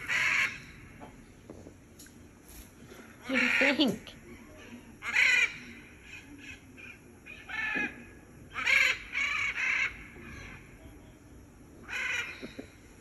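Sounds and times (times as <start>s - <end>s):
macaw squawks: 0.0s - 0.8s, 3.2s - 4.0s, 4.6s - 10.7s, 11.8s - 12.6s.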